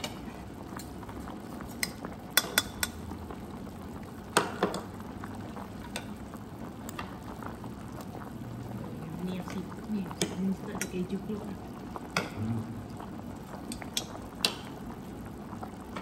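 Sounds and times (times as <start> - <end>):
broth bubbling: 5.0 - 16.0.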